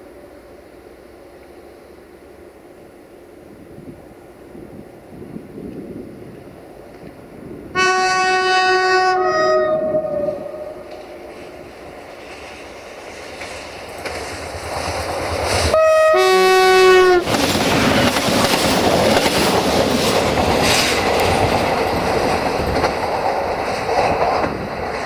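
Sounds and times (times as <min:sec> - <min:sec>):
train rolling past: 0:00.0 - 0:25.0
two-tone train horn: 0:07.7 - 0:11.5, 0:15.7 - 0:17.4
rail-joint clatter: 0:10.8 - 0:15.8, 0:17.2 - 0:25.0.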